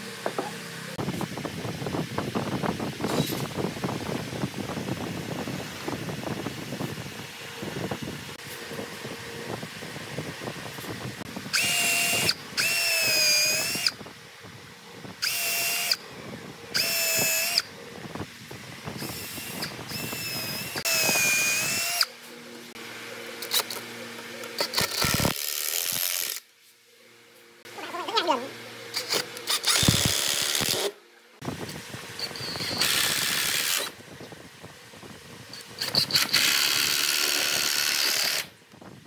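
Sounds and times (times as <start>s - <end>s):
cordless drill whining: 11.5s - 14.0s, 15.2s - 16.0s, 16.7s - 17.7s, 19.0s - 22.1s, 28.9s - 30.9s, 32.2s - 34.0s, 35.8s - 38.5s.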